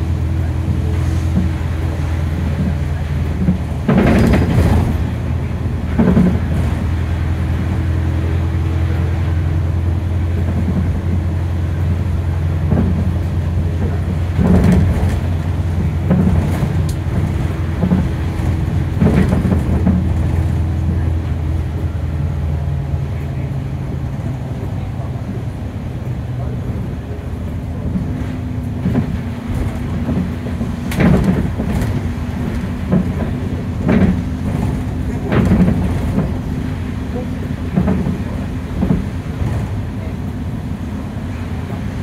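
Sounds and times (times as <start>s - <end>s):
bus diesel engine drone: 0.0s - 42.0s
knocks and rattles: 2.5s - 7.0s, 12.6s - 20.8s, 27.8s - 40.0s.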